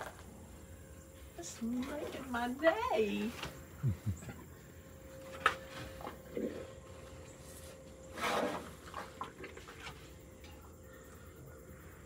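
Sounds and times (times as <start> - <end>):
elephant snuffles: 8.1 - 9.1.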